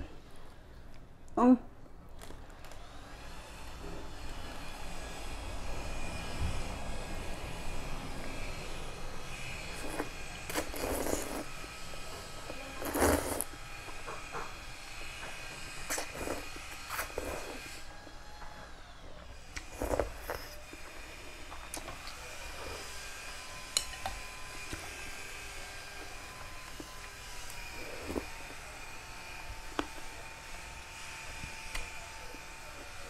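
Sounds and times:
person slurping noodle soup: 9.4s - 13.6s, 15.8s - 17.9s, 19.6s - 23.0s, 27.4s - 28.6s.

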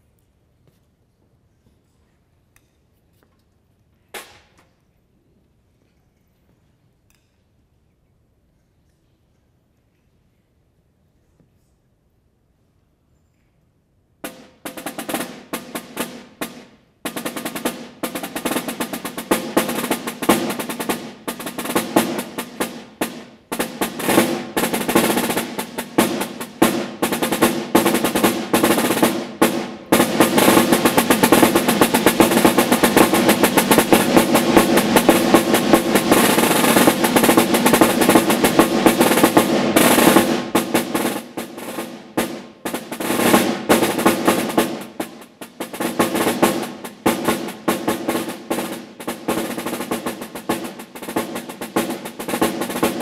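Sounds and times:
snare drum played with sticks: 4.1s - 4.6s, 14.2s - 53.0s.

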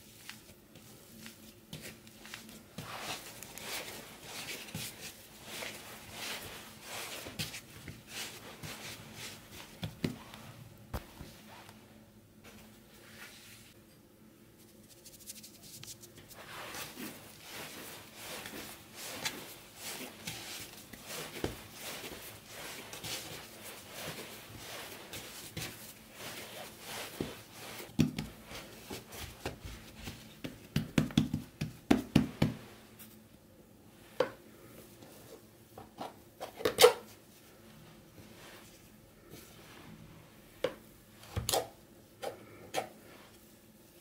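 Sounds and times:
hands kneading dough: 0.0s - 13.8s, 14.6s - 33.3s, 33.9s - 44.0s
soft pats on dough: 0.1s - 11.5s, 15.1s - 33.2s.

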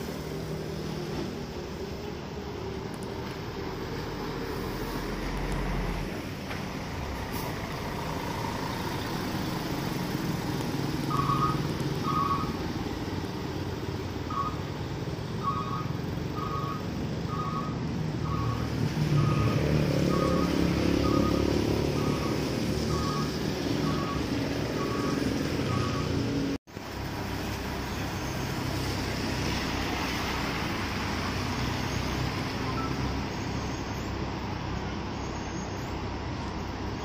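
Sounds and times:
tyre hiss on wet road: 0.0s - 11.1s, 26.7s - 36.9s
bus engine rumble: 0.0s - 37.0s
motorcycle passing close: 14.4s - 26.6s
two-tone beep: 23.8s - 26.2s, 32.6s - 33.1s.

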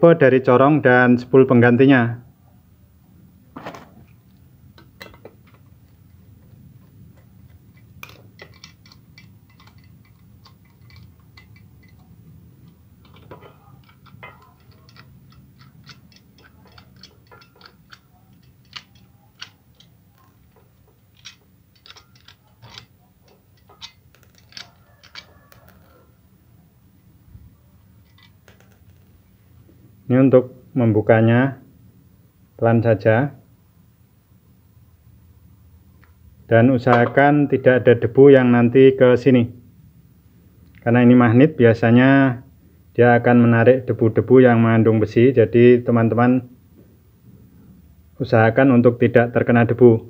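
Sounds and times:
plastic parts clicking: 7.2s - 26.0s, 28.0s - 29.1s.

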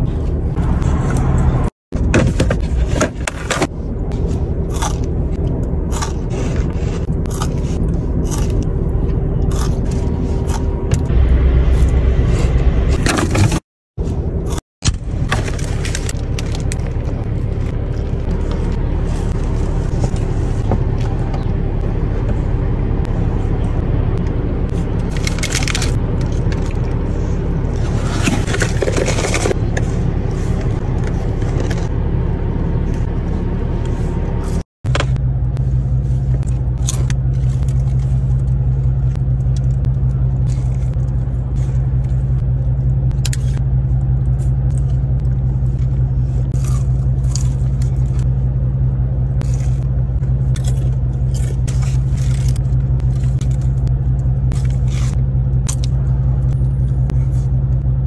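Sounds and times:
car engine idling hum: 0.0s - 58.0s
crunching while eating: 4.2s - 10.8s, 24.7s - 31.9s, 36.3s - 48.4s, 49.4s - 58.0s.

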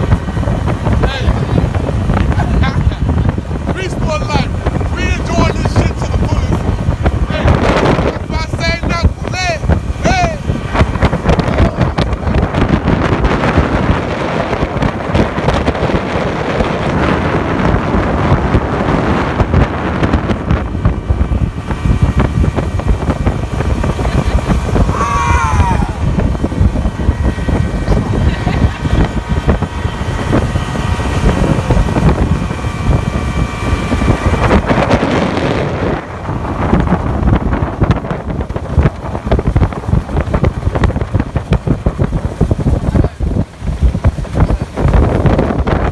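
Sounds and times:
boat motor humming: 0.0s - 45.9s
water rushing off hull: 0.0s - 45.9s
wind buffeting microphone: 0.0s - 45.9s.

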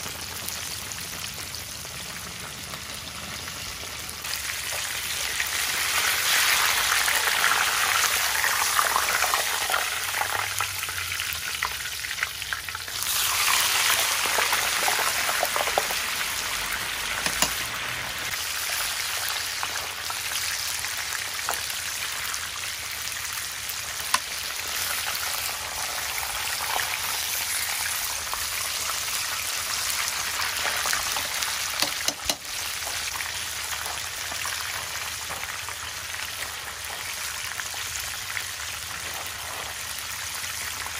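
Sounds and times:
hot oil sizzling and bubbling: 0.0s - 40.9s.

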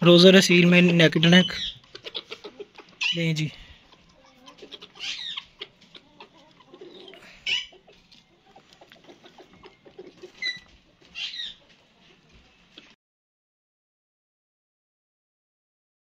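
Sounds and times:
birds chirping: 0.0s - 13.0s
rooster pecking grain from dish: 3.9s - 12.9s.

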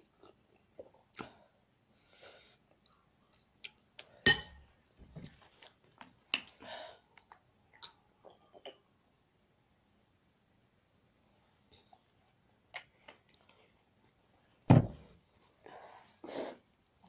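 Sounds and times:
sharp clink: 4.3s - 4.6s.

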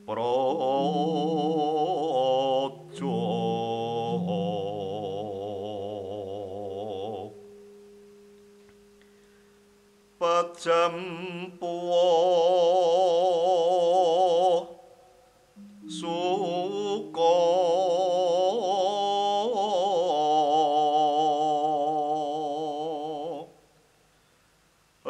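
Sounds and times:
solo voice singing: 0.0s - 7.5s, 10.2s - 14.9s, 15.6s - 23.6s
steady low tone: 0.0s - 10.3s, 15.5s - 20.5s.

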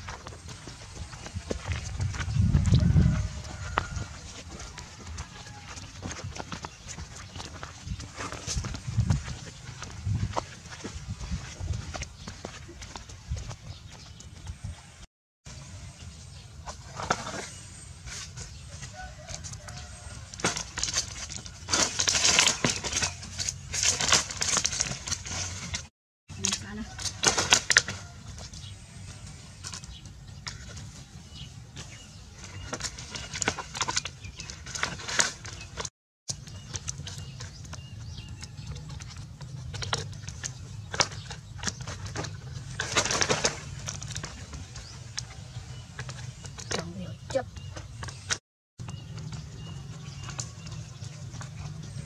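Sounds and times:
dry palm fronds scraping and rustling: 16.6s - 29.9s, 30.5s - 35.9s, 40.9s - 46.4s.

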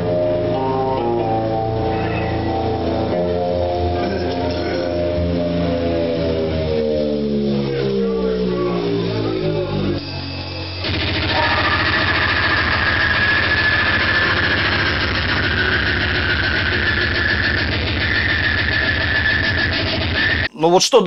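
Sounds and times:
grindcore band playing live: 0.0s - 20.5s
steady high whine: 0.0s - 20.5s.

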